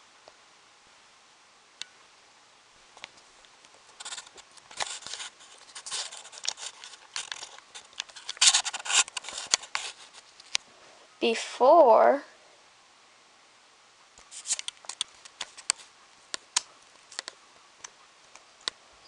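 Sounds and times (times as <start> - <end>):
rubbing scraping and clicking: 3.9 - 10.6, 14.2 - 18.4.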